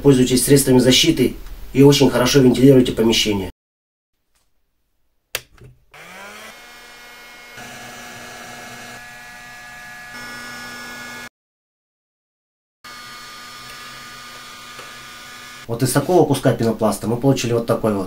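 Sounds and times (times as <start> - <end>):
heat gun fan whine and hum: 6.0 - 11.3, 12.9 - 15.7.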